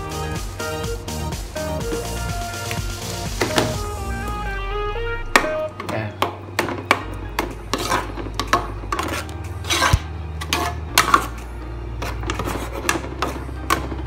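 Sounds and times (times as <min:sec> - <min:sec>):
background music: 0:00.0 - 0:14.0.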